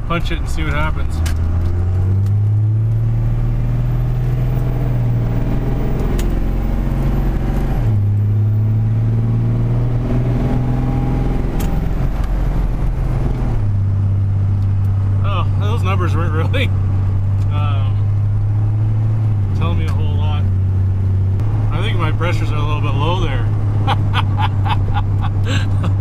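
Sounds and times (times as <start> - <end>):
diesel engine at full throttle: 0.0 - 26.0.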